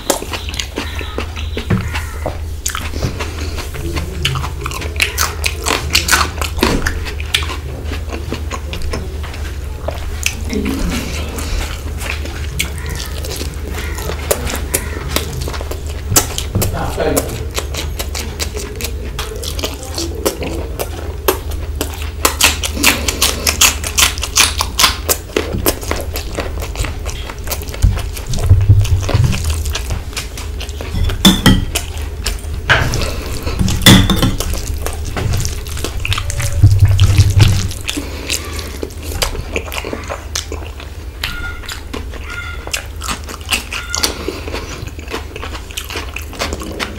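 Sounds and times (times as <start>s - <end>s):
man chewing and smacking: 0.0s - 46.9s.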